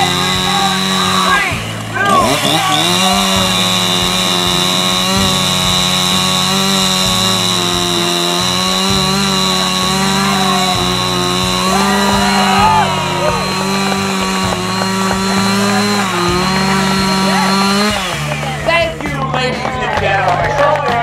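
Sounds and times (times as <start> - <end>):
chainsaw cutting log: 0.0 - 20.6
axe striking log: 2.1 - 18.6.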